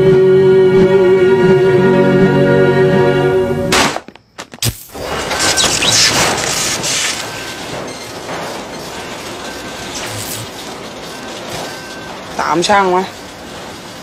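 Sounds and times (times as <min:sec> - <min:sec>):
photocopier whirring and rattling: 0:05.0 - 0:14.0.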